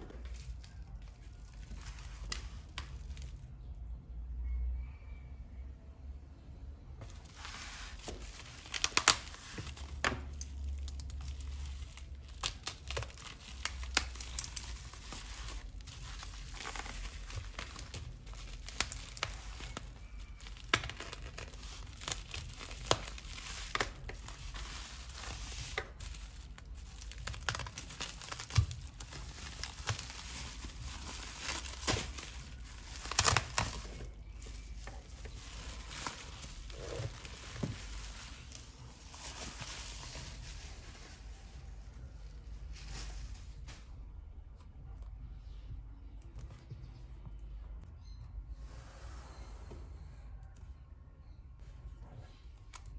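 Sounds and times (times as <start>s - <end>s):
bubble wrap crinkling: 0.0s - 3.8s, 7.0s - 45.0s.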